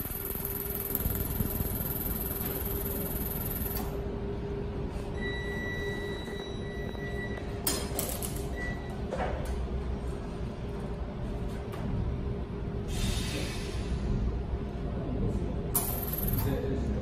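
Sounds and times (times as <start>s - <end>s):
high-pitched whine: 0.0s - 4.0s
welding machine humming: 0.0s - 4.1s.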